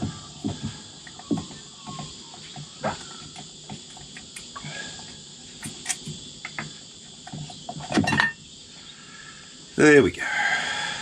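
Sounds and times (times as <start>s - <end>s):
insects chirring: 0.0s - 11.0s
small clicks and metal knocks: 5.6s - 8.4s
metal clatter: 7.8s - 8.4s.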